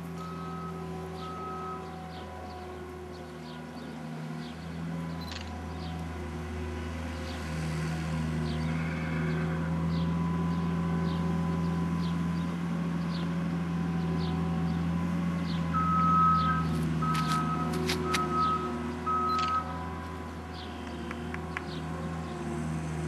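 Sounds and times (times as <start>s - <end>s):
tractor engine running: 0.0s - 8.6s, 9.7s - 23.0s.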